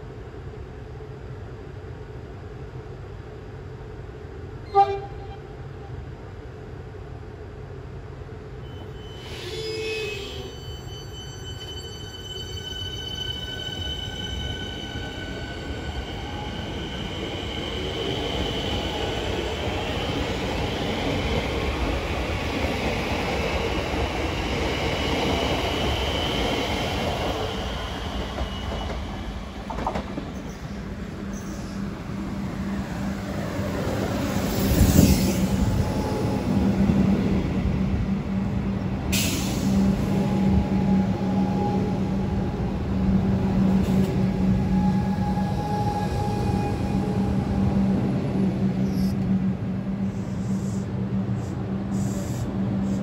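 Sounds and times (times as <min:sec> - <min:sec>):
rail noise: 0:00.0 - 0:53.0
train horn toot: 0:04.7 - 0:05.6.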